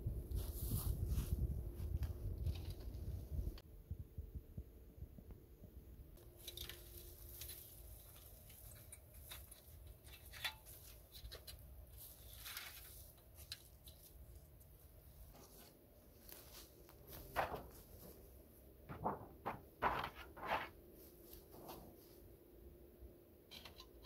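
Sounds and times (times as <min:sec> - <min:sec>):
dry leaves rustling and crunching: 0:06.2 - 0:14.5.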